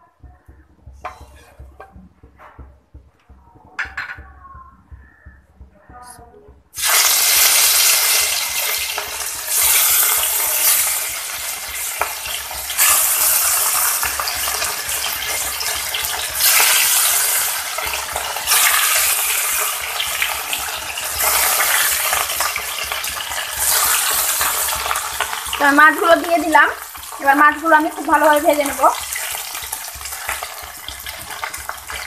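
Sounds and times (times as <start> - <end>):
fish sizzling in hot oil: 6.7 - 32.0.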